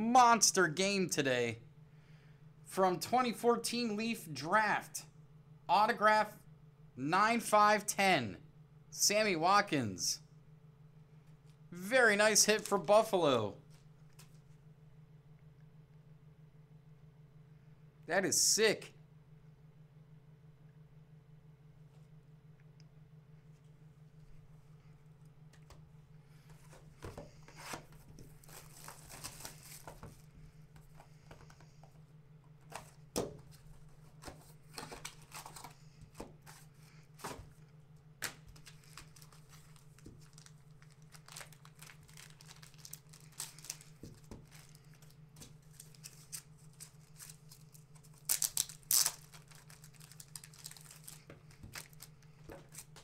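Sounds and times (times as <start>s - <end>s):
plastic wrapping crinkling and tearing: 28.3s - 30.0s, 38.5s - 53.0s.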